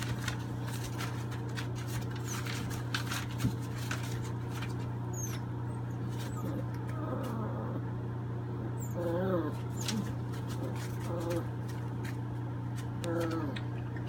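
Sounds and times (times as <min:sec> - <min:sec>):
puppies scuffling over newspaper: 0:00.0 - 0:07.6, 0:09.0 - 0:13.6
steady low hum: 0:00.0 - 0:14.0
puppies whimpering: 0:05.1 - 0:07.9, 0:08.6 - 0:11.7, 0:13.0 - 0:14.0.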